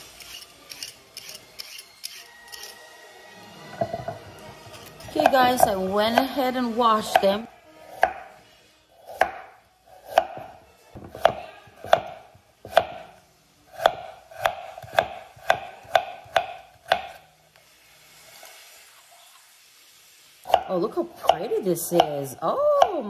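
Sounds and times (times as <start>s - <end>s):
knife chopping on cutting board: 9.1s - 13.1s, 13.8s - 17.2s.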